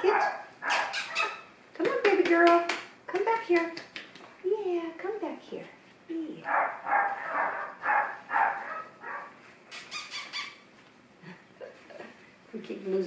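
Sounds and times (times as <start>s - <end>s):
puppies yapping: 0.1s - 1.5s, 6.5s - 10.7s
puppy squealing: 0.2s - 1.5s, 6.9s - 10.7s.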